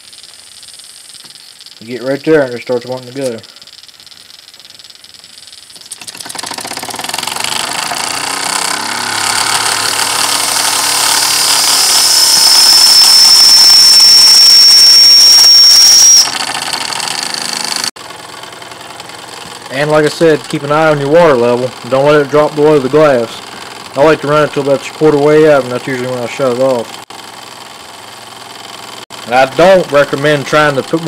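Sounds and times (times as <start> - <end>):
model steam engine running: 0.0 - 31.0
high whine: 7.6 - 17.9.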